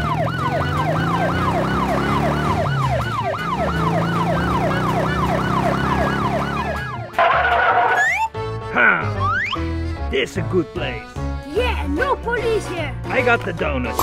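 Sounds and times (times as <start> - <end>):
police siren yelp: 0.0 - 8.3.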